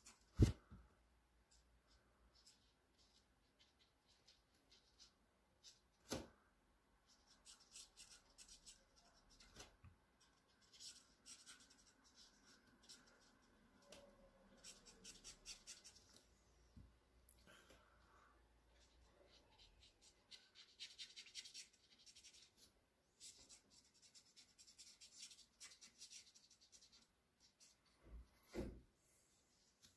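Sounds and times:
marker pen scratching on paper: 1.5s - 6.3s, 7.0s - 16.2s, 18.7s - 28.0s.

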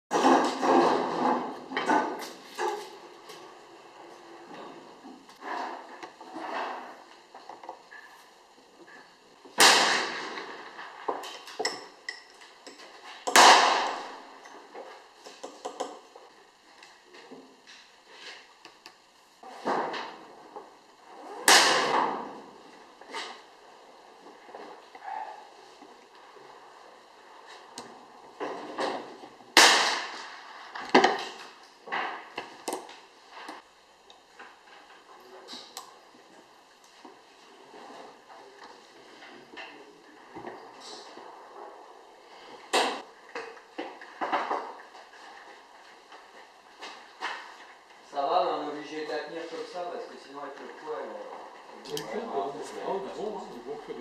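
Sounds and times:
loud gunshot bangs: 9.6s - 10.4s, 13.4s - 14.1s, 21.5s - 22.0s, 29.6s - 30.2s.

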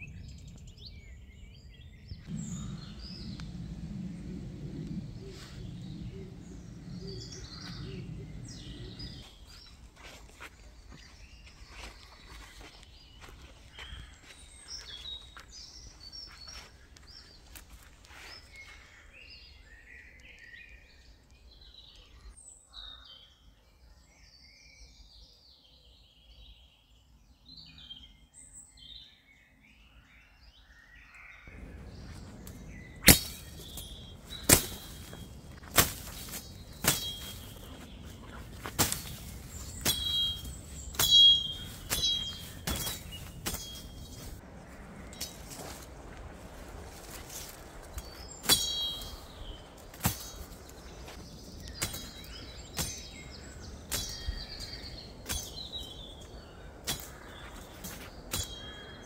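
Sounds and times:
birds chirping: 0.0s - 59.0s
fronds rustling: 2.1s - 19.7s, 31.5s - 59.0s
footsteps on woodland path: 5.1s - 19.5s, 31.6s - 59.0s
machete chopping ferns: 33.0s - 44.4s, 47.4s - 49.2s, 49.9s - 55.9s, 56.8s - 58.8s.

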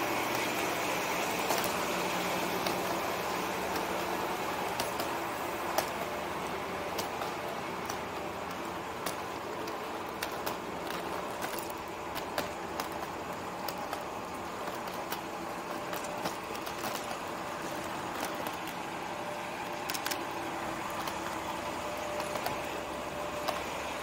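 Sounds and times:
ambient hum: 0.0s - 24.0s
light clicks and taps: 3.6s - 6.1s, 6.9s - 18.8s, 19.6s - 23.8s.

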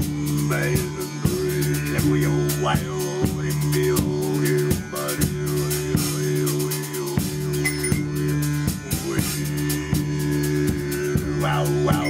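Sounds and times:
acoustic band playing: 0.0s - 12.0s
drum kit cymbals and drums: 0.0s - 12.0s
sliding high melody: 7.6s - 8.3s.

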